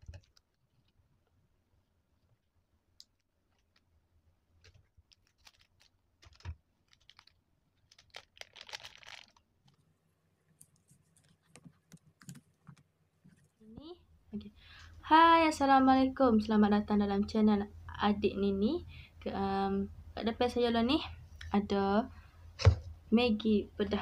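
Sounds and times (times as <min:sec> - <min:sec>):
sachets being handled: 0:03.0 - 0:03.9, 0:04.6 - 0:09.8.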